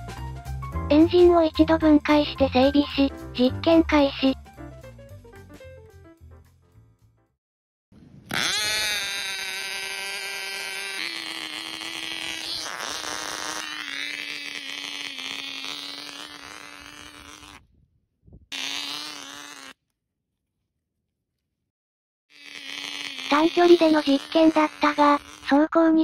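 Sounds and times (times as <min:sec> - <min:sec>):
model engine high-pitched drone: 0:08.3 - 0:17.5.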